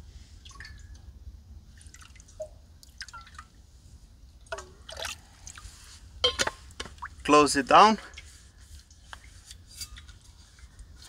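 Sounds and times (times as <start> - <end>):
water plinking and bubbling: 0.4 - 1.1, 1.8 - 3.5, 4.4 - 5.6.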